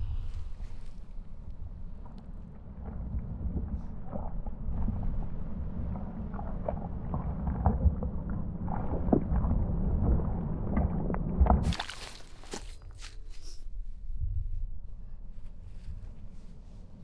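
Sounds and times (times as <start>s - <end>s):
steady low rumble: 0.0s - 17.0s
boots splashing in muddy puddle: 11.6s - 13.2s.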